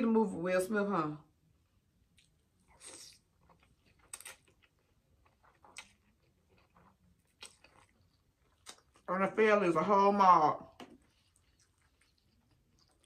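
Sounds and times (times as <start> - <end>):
faint chewing: 2.0 - 9.2, 10.7 - 13.0.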